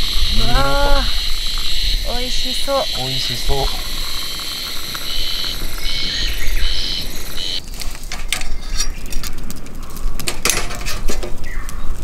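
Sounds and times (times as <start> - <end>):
birds chirping: 0.0 - 7.6
sharp clicks: 0.0 - 7.6.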